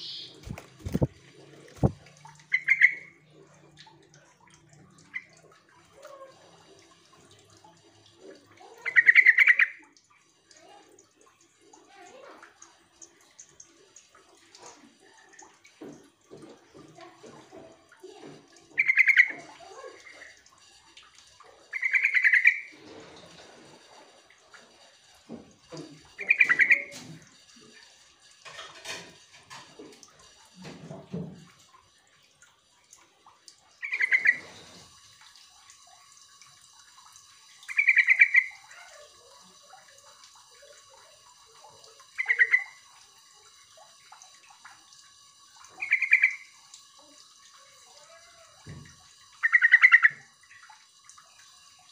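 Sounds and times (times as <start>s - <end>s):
bird calling in pulsed phrases: 0.0s - 1.1s, 1.8s - 3.2s, 8.8s - 9.8s, 18.8s - 19.4s, 26.2s - 27.0s, 33.8s - 34.5s, 37.7s - 38.6s, 42.1s - 42.8s, 45.7s - 46.6s, 49.4s - 50.3s.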